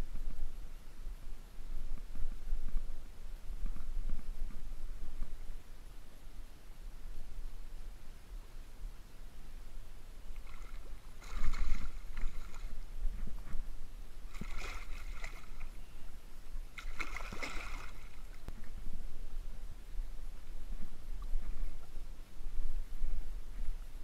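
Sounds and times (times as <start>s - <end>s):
water splashing: 10.3s - 13.5s, 14.2s - 15.8s, 16.7s - 18.5s.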